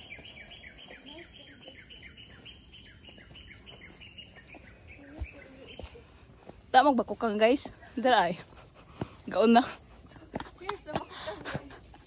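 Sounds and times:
bird chirping: 0:00.0 - 0:06.5.

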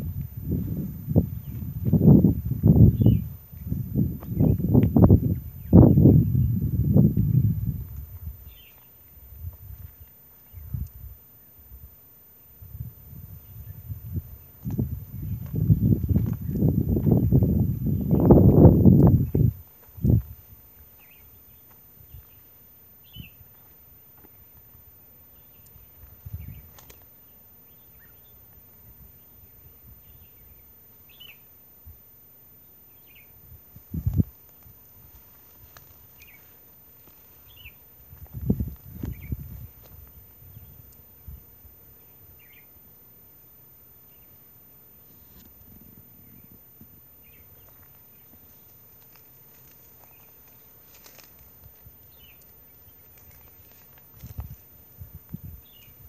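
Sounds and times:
faint bird chirps: 0:02.7 - 0:11.8, 0:20.7 - 0:24.6, 0:25.3 - 0:31.6, 0:35.6 - 0:37.9, 0:41.9 - 0:42.8.

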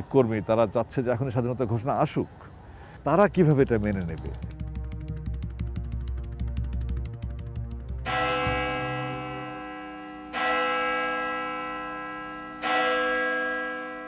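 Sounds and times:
fast ticking: 0:03.6 - 0:08.1
deep bell ringing: 0:08.0 - 0:14.0.

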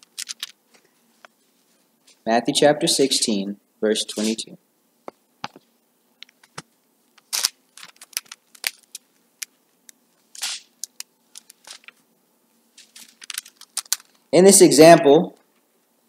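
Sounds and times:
paper pages rustling: 0:00.0 - 0:02.2, 0:04.1 - 0:04.4, 0:06.4 - 0:09.6, 0:10.2 - 0:12.0, 0:12.8 - 0:14.3.

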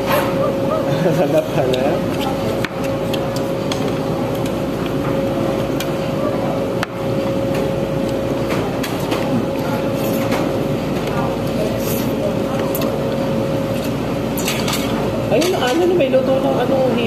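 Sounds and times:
constant hum: 0:00.0 - 0:17.0
murmur of voices: 0:00.0 - 0:17.0.

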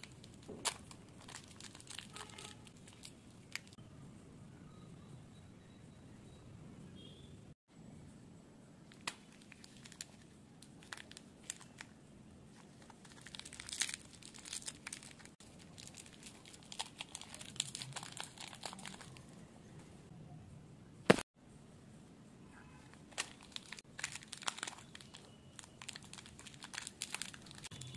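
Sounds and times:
plastic candy wrapper crinkling: 0:00.0 - 0:03.8, 0:08.9 - 0:19.4, 0:22.9 - 0:27.9.

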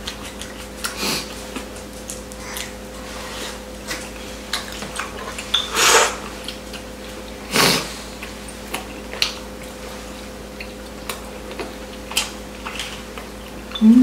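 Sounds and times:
faint steady hum: 0:00.0 - 0:14.0
wet chewing: 0:00.0 - 0:14.0
loud slurps: 0:05.7 - 0:06.3, 0:07.5 - 0:08.0.

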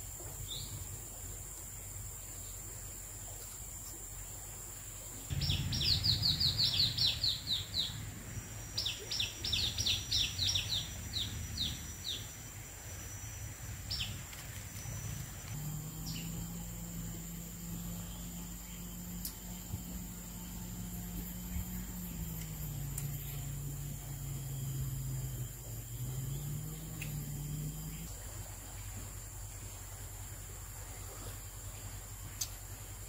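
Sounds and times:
thin high-pitched whine: 0:00.0 - 0:33.0
bird calling with falling notes: 0:05.3 - 0:08.1.

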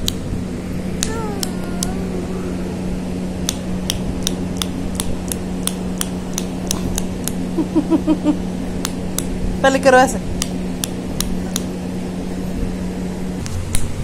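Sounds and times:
steady low hum: 0:00.0 - 0:14.0
toddler babbling: 0:01.0 - 0:03.0
toddler cooing: 0:01.0 - 0:03.0
sharp clicks: 0:03.4 - 0:07.4.

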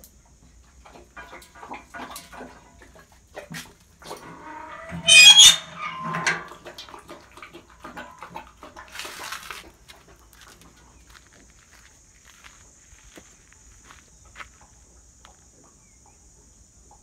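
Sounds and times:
steel slide bolt squealing: 0:04.3 - 0:06.5.

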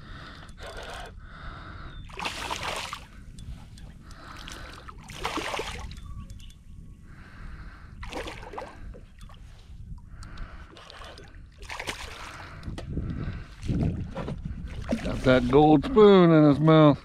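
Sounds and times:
fish splashing: 0:02.1 - 0:03.2, 0:04.3 - 0:05.9, 0:10.7 - 0:12.4.

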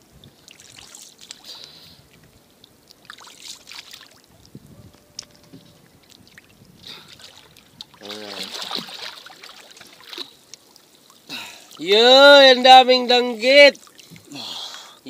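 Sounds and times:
water lapping against boat: 0:00.1 - 0:11.8, 0:13.6 - 0:15.0.

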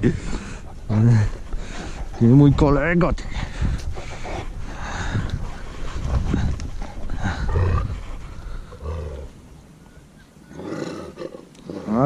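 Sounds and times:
dogs growling: 0:00.5 - 0:09.6, 0:10.5 - 0:12.0.

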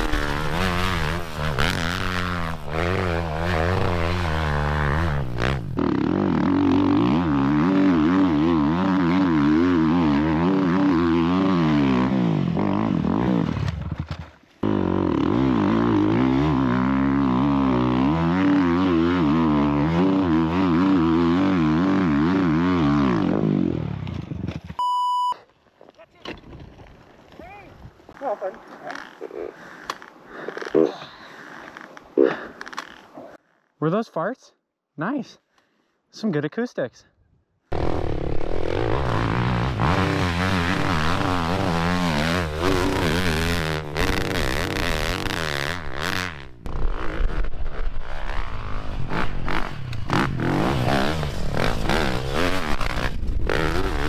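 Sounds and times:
dirt bike engine revving: 0:00.0 - 0:13.7, 0:14.6 - 0:24.0, 0:37.7 - 0:54.0.

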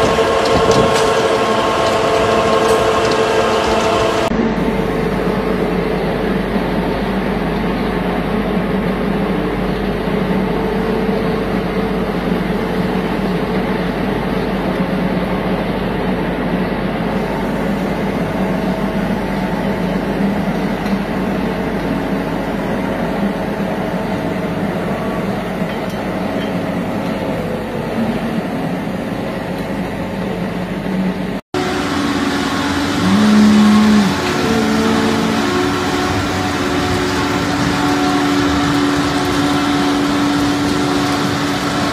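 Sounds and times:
feed mixer mechanical drone: 0:00.0 - 0:30.7, 0:31.3 - 0:41.9
steady machine noise: 0:00.0 - 0:41.9
low tone: 0:23.5 - 0:30.0, 0:31.6 - 0:39.3.

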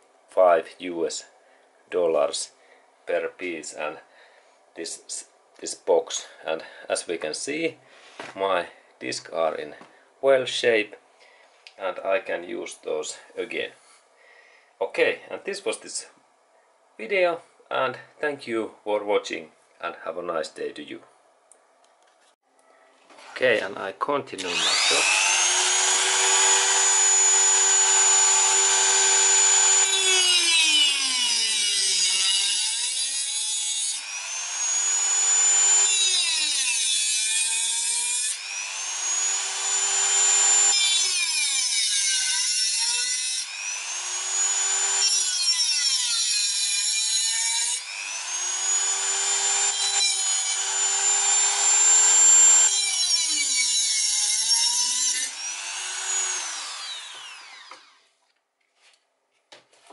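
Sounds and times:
rotary tool cutting metal: 0:24.4 - 0:58.0.

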